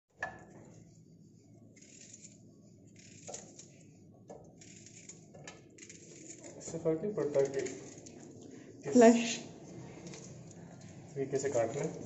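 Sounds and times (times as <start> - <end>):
onion stirred in a pan: 0.7 - 8.4.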